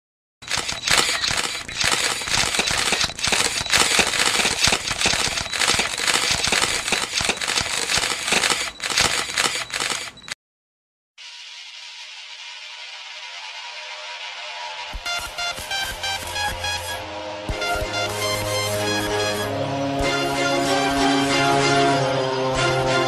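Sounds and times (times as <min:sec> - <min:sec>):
quiet music: 0:14.9 - 0:23.0.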